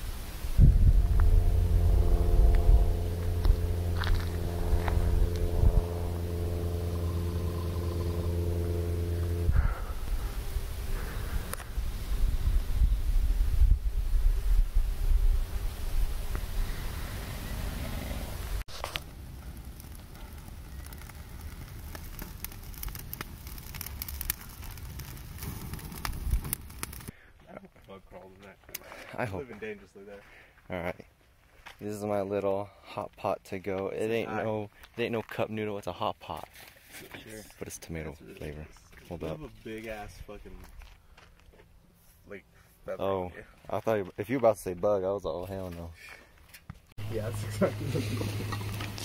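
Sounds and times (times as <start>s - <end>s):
campfire crackling: 0.0s - 28.0s, 47.0s - 49.0s
motor hum: 0.4s - 13.2s, 47.0s - 49.0s.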